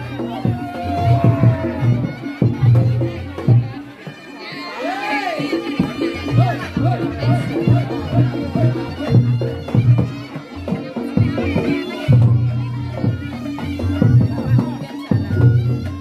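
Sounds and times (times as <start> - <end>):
shawm wailing: 0.0 - 2.5, 4.0 - 10.4.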